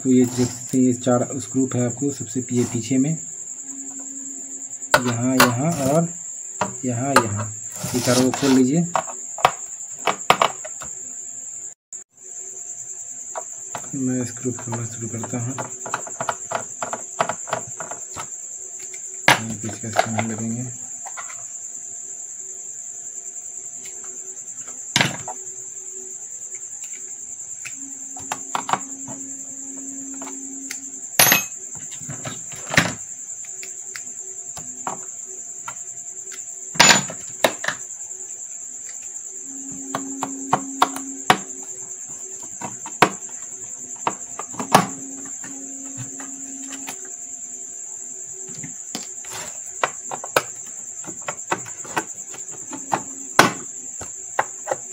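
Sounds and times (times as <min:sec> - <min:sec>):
cricket drone: 0:00.0 - 0:54.9.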